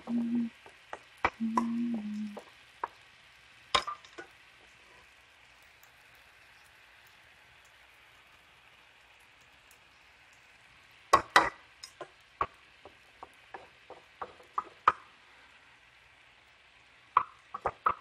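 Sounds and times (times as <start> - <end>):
faint steady hiss: 0.0 - 18.0
utensils knocking on frying pan: 11.1 - 15.0, 17.2 - 18.0.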